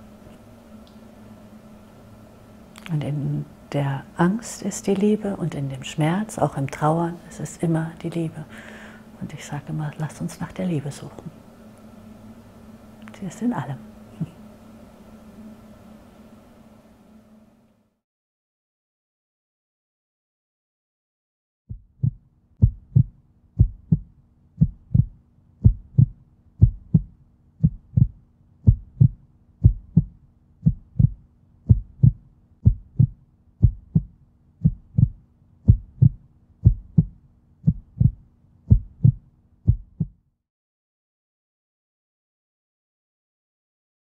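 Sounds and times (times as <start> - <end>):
faint low hum: 0.0 - 18.0, 21.7 - 40.3
heartbeat thumps: 21.7 - 40.2.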